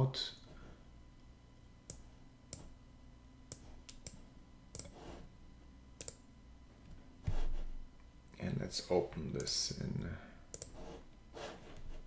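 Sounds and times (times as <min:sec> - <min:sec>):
computer mouse clicking: 0:03.5 - 0:05.0, 0:06.0 - 0:06.2, 0:10.5 - 0:10.8.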